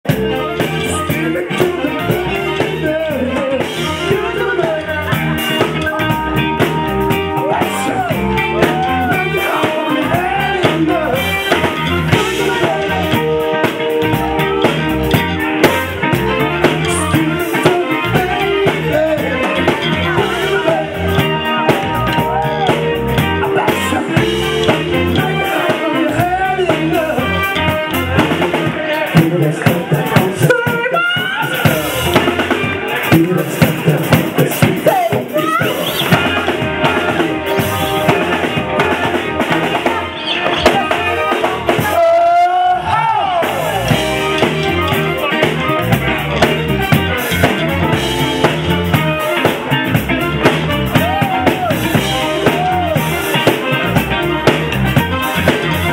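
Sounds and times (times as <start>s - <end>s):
live soul-funk band: 0.0s - 55.9s
person singing into a microphone: 0.2s - 6.6s, 7.3s - 13.7s, 16.6s - 22.8s, 23.4s - 44.9s.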